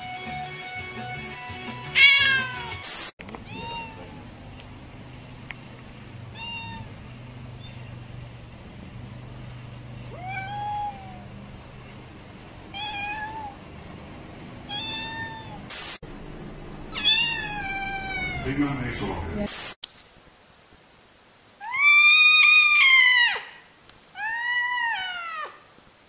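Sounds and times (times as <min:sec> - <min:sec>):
cats meowing: 0:01.9 - 0:02.8, 0:03.4 - 0:04.3, 0:06.3 - 0:07.0, 0:10.0 - 0:11.3, 0:12.7 - 0:13.6, 0:14.7 - 0:15.6, 0:16.9 - 0:18.5, 0:21.6 - 0:23.6, 0:24.2 - 0:25.6.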